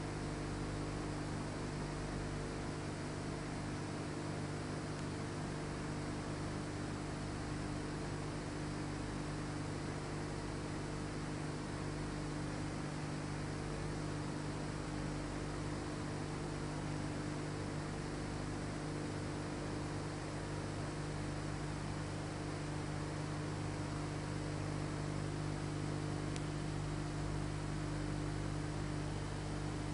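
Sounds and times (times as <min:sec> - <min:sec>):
electrical hum with hiss: 0:00.0 - 0:29.9.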